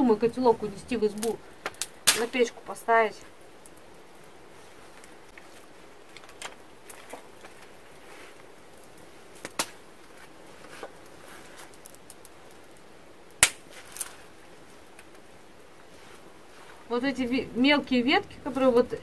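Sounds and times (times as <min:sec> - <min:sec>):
wood fire crackling: 0:00.0 - 0:19.0
stick scraping in fire: 0:00.2 - 0:17.4.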